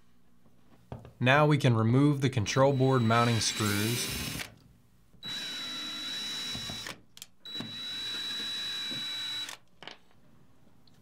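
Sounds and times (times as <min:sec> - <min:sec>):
cordless drill whining: 0:02.7 - 0:04.5, 0:05.2 - 0:09.6.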